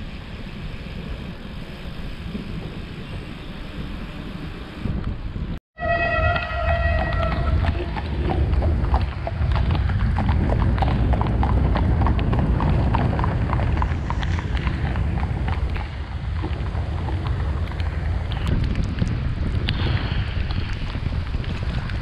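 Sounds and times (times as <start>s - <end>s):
wind rumble on microphone: 0.0s - 22.0s
hooves clip-clopping on wet pavement: 5.9s - 22.0s.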